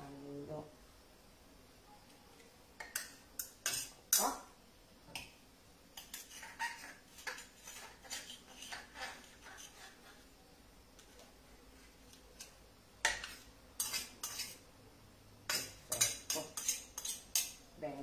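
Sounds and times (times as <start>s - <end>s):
metal utensils clinking on pan and plate: 2.8s - 4.3s, 12.4s - 14.6s, 15.5s - 17.6s.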